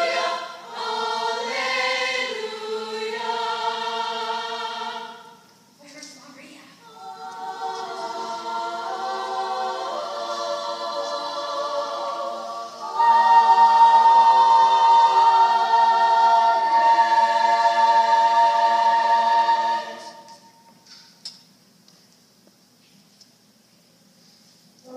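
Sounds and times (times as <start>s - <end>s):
women's choir singing: 0.0s - 5.5s, 6.8s - 20.7s.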